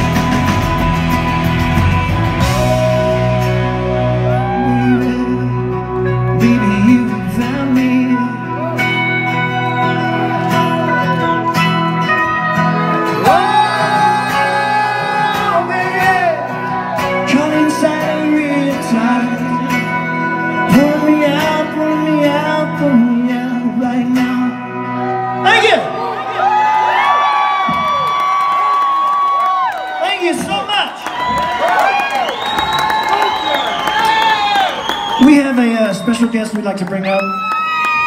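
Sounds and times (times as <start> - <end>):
drums: 0.0 - 24.6, 26.9 - 38.0
electric guitar: 0.0 - 28.7
man singing long notes: 2.6 - 8.9, 13.1 - 16.5.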